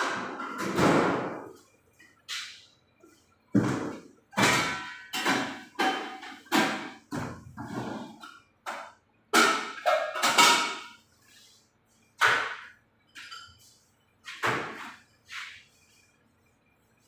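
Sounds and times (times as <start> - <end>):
sharp metallic clangs and knocks: 3.5 - 11.0.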